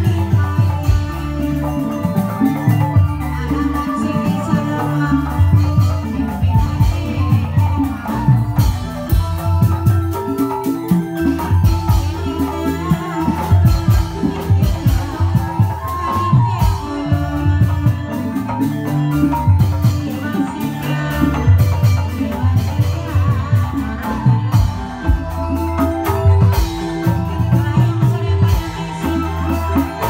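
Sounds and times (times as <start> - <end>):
drums playing: 0.0 - 30.0
pitched metal percussion: 0.0 - 30.0.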